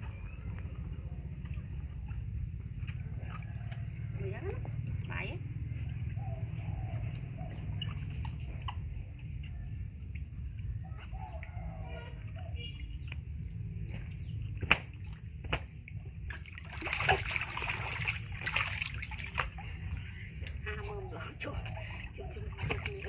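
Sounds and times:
monkey splashing in water: 14.4s - 23.0s
water slopping over rim: 14.6s - 23.0s.

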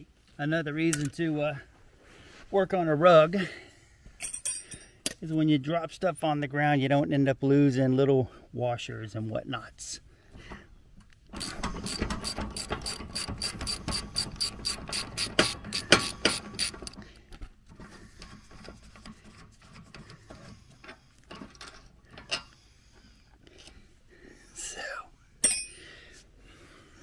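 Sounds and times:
socket ratchet clicking: 11.4s - 17.0s.

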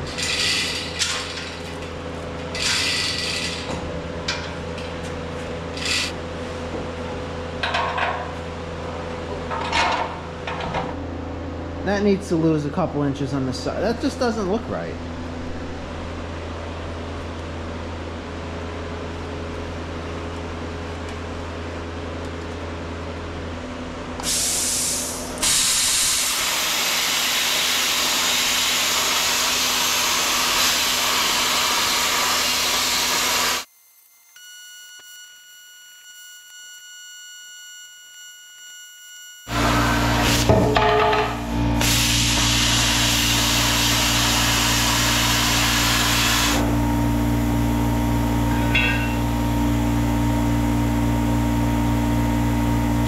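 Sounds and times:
plasma cutter hissing: 24.2s - 33.6s, 41.8s - 46.6s
low hum: 46.7s - 52.6s.

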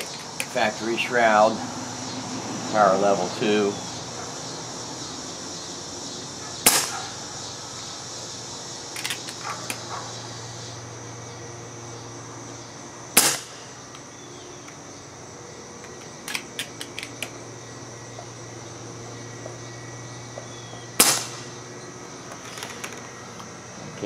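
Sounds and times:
air rifle shots: 6.6s - 7.2s, 13.2s - 13.8s, 21.0s - 21.6s.

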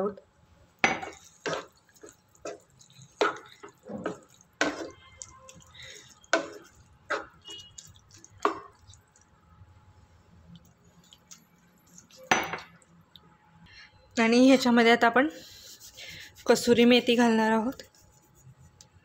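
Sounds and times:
spatula stirring curry in pan: 0.7s - 9.3s, 10.6s - 12.7s.

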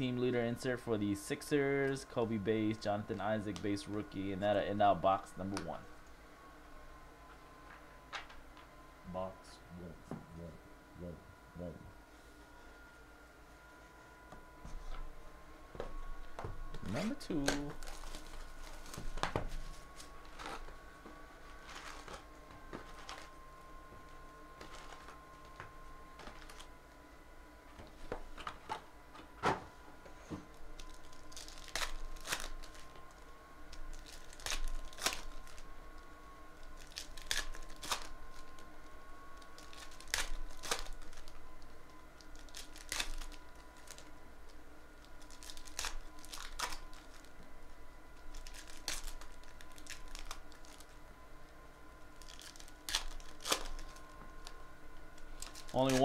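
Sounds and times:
foil wrappers crinkling: 16.8s - 20.8s, 21.5s - 23.4s, 24.6s - 26.7s, 30.5s - 38.7s, 39.3s - 47.5s, 48.2s - 51.0s, 52.1s - 56.0s.

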